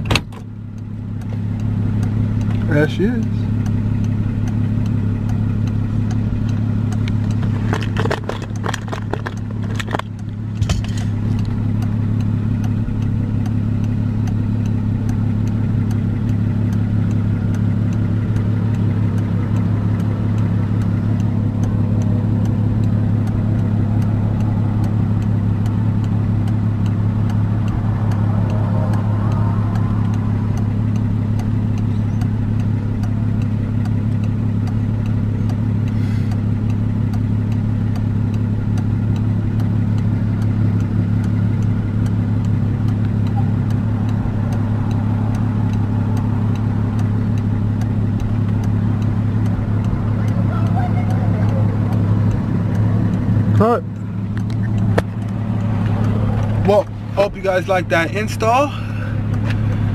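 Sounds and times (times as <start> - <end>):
car engine idling: 0.0 - 59.9
clicks and knocks: 7.1 - 11.1.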